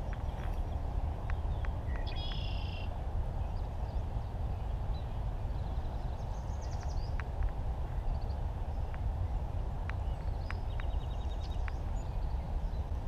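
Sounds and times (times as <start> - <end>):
low microphone rumble: 0.0 - 13.0
faint clicks: 9.8 - 11.9.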